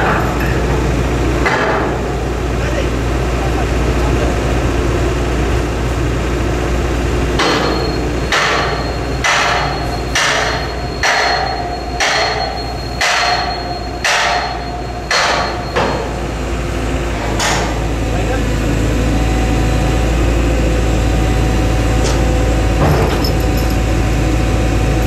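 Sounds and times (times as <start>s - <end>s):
hammer striking steel pin: 7.4s - 16.0s.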